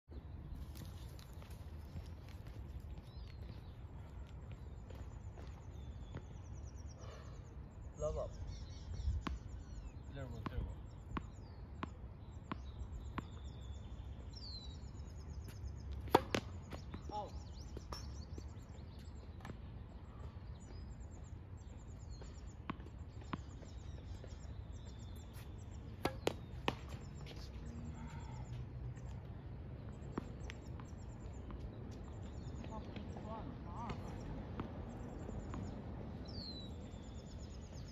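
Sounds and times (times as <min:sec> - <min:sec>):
birds chirping: 0:00.0 - 0:37.9
tennis balls hit and bouncing: 0:10.2 - 0:13.8, 0:15.4 - 0:17.3, 0:22.0 - 0:27.7, 0:28.8 - 0:37.2.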